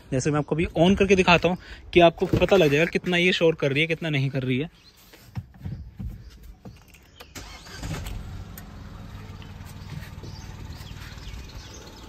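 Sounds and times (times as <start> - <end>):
car engine starting and idling: 7.2 - 12.0.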